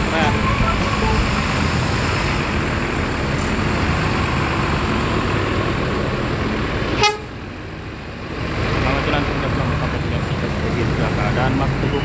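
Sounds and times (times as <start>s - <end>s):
horn blast: 0.0s - 1.8s
terminal noise: 0.0s - 1.9s
diesel coach engine: 0.0s - 12.0s.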